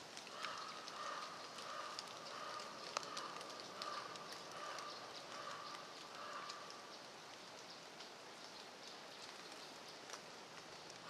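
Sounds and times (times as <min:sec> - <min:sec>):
steady quiet hiss: 0:00.0 - 0:11.0
water drops on leaves: 0:00.0 - 0:11.0.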